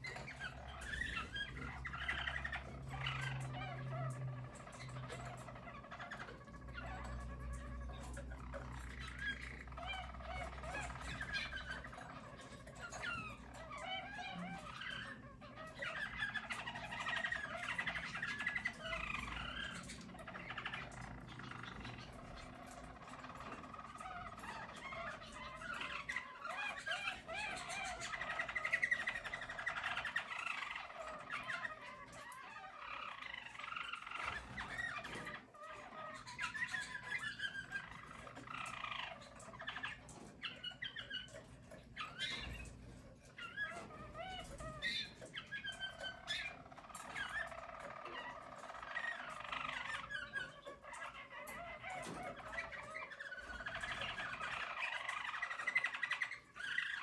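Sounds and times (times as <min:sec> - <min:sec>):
canary warbling trills: 0:00.0 - 0:57.0.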